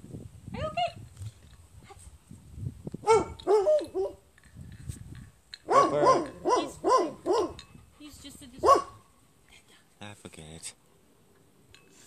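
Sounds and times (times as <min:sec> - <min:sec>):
dog yelping barks: 0:03.0 - 0:04.2, 0:05.6 - 0:07.6, 0:08.6 - 0:09.0.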